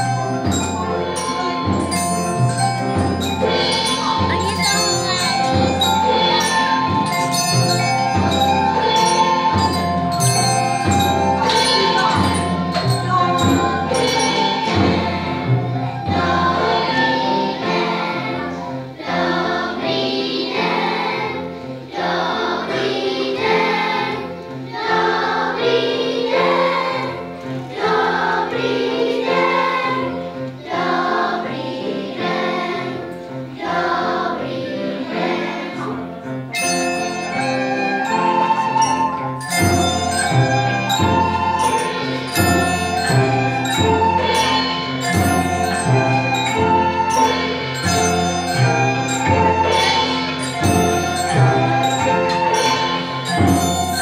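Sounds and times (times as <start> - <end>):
jingling percussion beat: 0.0 - 18.1, 36.4 - 54.0
children's choir singing: 0.0 - 54.0.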